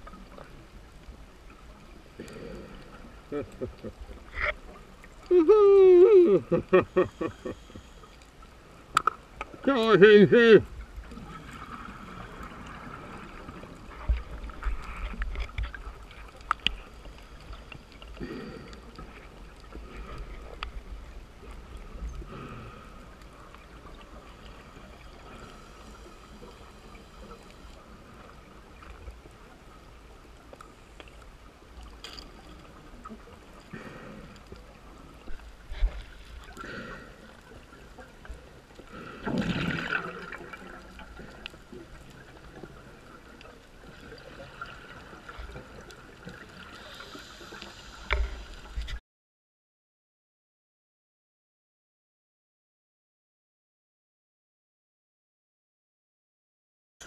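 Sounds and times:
underwater hiss: 24.1s - 28.0s, 46.1s - 48.8s
exhaled bubbles gurgling: 38.9s - 47.6s.

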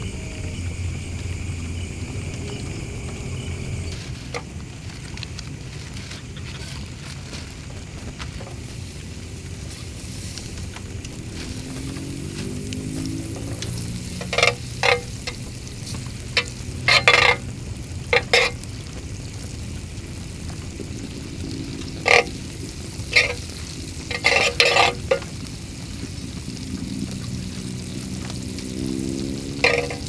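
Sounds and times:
fat sizzling: 0.0s - 30.0s
metal spoon scraping grill pan: 8.6s - 18.7s, 21.9s - 25.4s, 29.4s - 30.0s.

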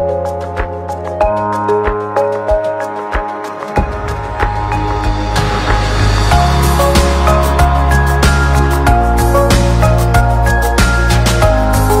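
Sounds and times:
music with steady beat: 0.0s - 12.0s
heavy bass: 3.8s - 12.0s.

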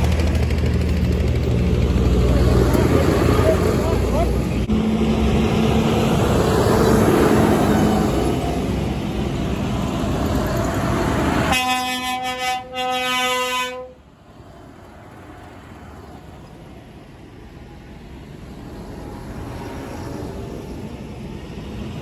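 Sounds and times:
tractor engine: 0.0s - 22.0s
tractor horn blast: 11.5s - 14.0s.

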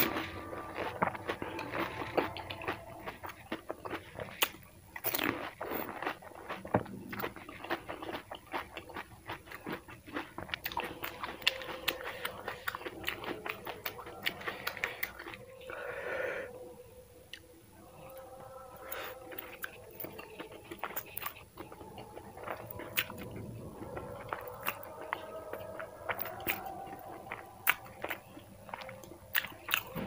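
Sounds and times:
crisp shell crunching in mouth: 0.0s - 15.5s
wet chewing: 0.0s - 16.1s, 17.3s - 30.0s.

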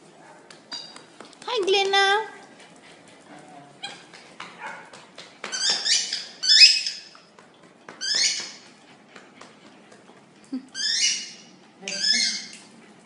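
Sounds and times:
puppy squealing: 5.5s - 7.2s, 8.0s - 8.6s, 10.7s - 12.6s.

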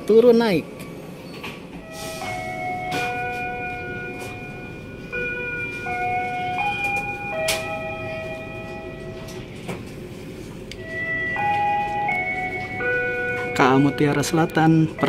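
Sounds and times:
train rumbling: 0.0s - 15.0s
slow melody of held notes: 1.8s - 9.9s, 10.6s - 15.0s.

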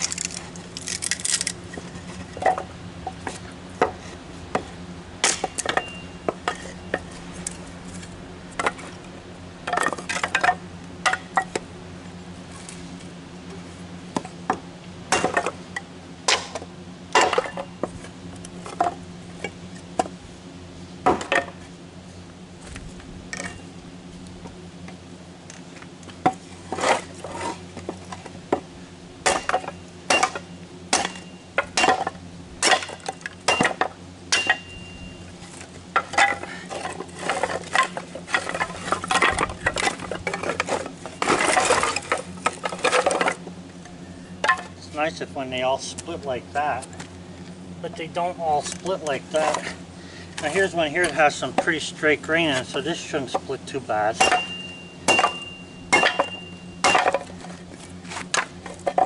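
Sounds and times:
split sticks clattering: 0.0s - 3.4s, 29.2s - 34.8s, 35.9s - 44.8s, 54.2s - 59.0s
hatchet strikes on wood: 29.2s - 34.7s, 54.2s - 57.3s.

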